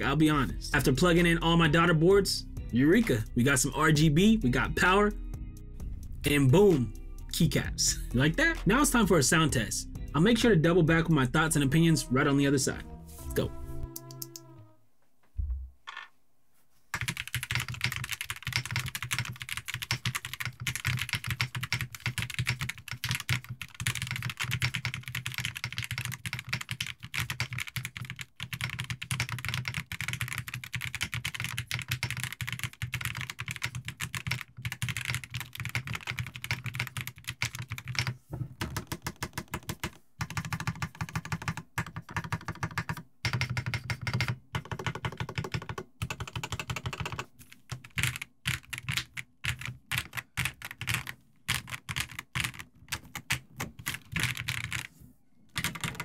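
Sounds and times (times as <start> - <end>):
mechanical keyboard typing: 17.0 - 54.9, 55.5 - 56.0.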